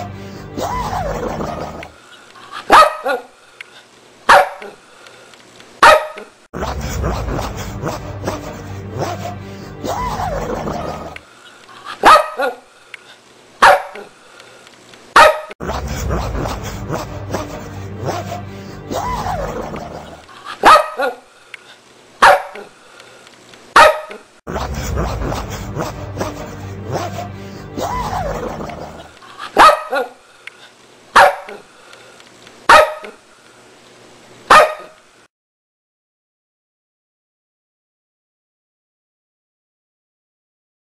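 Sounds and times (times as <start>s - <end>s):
music: 0.0s - 1.9s, 6.6s - 11.2s, 15.6s - 20.2s, 24.5s - 29.1s
dog barking: 2.6s - 3.4s, 4.3s - 4.8s, 5.8s - 6.3s, 12.0s - 12.7s, 13.6s - 14.1s, 15.2s - 15.6s, 20.6s - 21.2s, 22.2s - 22.7s, 23.8s - 24.2s, 29.6s - 30.2s, 31.2s - 31.6s, 32.7s - 33.2s, 34.5s - 35.0s.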